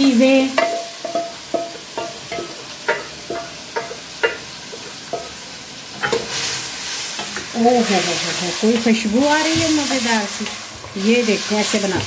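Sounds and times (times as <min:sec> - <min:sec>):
metal cookware clinking: 0:00.0 - 0:06.5
frying sizzle: 0:00.0 - 0:12.0.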